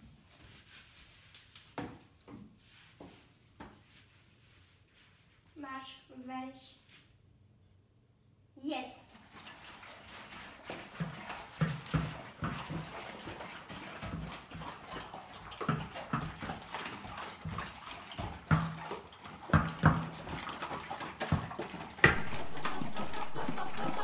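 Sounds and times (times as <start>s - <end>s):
dogs chewing and lapping: 9.1s - 24.0s
bowls knocking on tiled floor: 22.0s - 24.0s.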